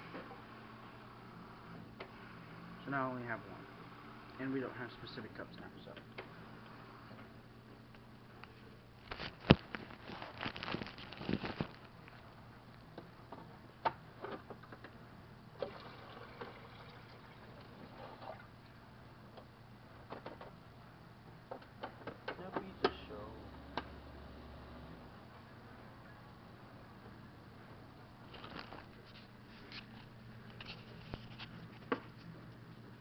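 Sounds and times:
clatter and rustling: 0:09.0 - 0:12.0, 0:28.3 - 0:32.8.

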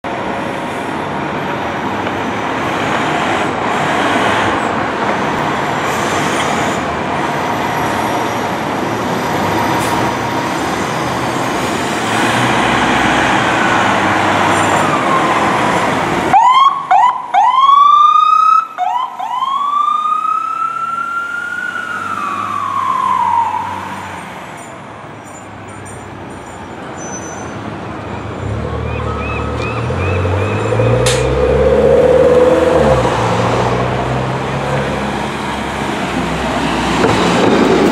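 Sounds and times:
fire engine rushing noise: 0:00.1 - 0:37.9
siren wailing: 0:14.8 - 0:24.1, 0:28.7 - 0:33.0
siren yelping: 0:16.3 - 0:24.0, 0:28.8 - 0:31.0.

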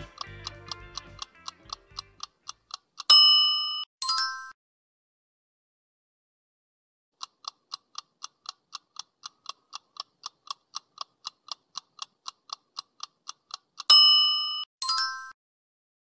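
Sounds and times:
clock ticking: 0:00.0 - 0:03.9, 0:07.2 - 0:14.7
bright ringing chime: 0:13.9 - 0:15.4.

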